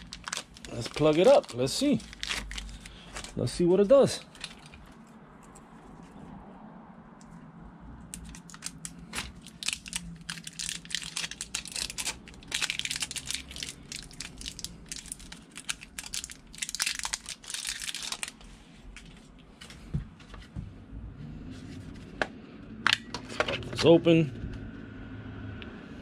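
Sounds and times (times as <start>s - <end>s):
plastic packaging crinkling: 0.0s - 5.0s, 8.2s - 18.5s.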